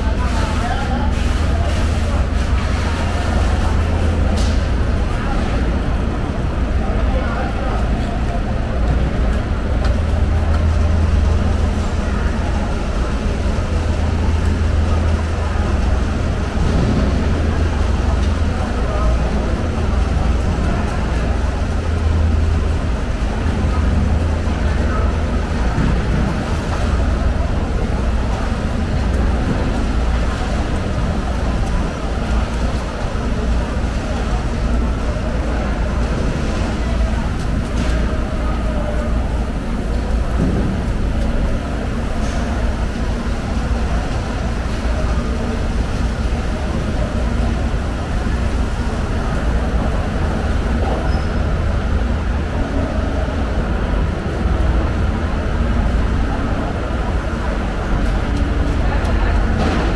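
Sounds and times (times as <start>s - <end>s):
faint voices: 0.0s - 59.9s
low rumble with hiss: 0.0s - 59.9s.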